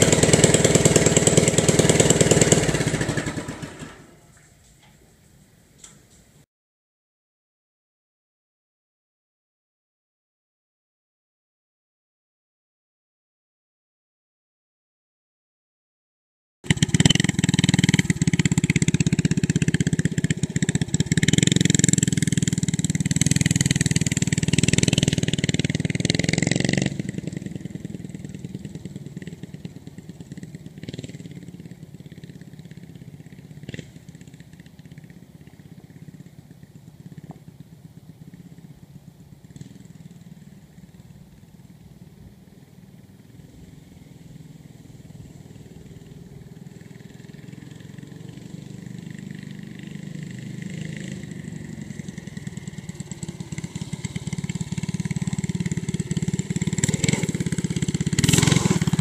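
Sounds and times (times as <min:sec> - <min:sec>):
go-kart engine running: 0:00.0 - 0:04.4, 0:16.7 - 0:59.0.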